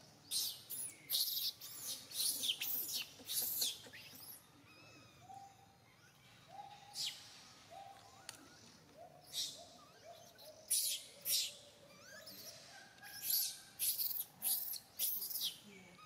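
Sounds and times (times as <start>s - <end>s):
baby monkey cooing: 0.3s - 5.2s, 8.1s - 15.6s
baby monkey screaming: 9.2s - 15.6s.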